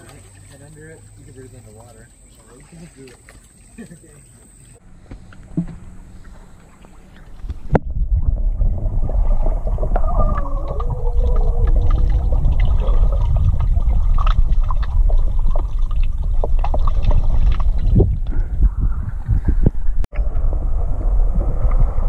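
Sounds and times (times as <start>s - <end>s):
muffled underwater rumble: 4.8s - 22.0s
underwater crackling and bubbling: 5.0s - 22.0s.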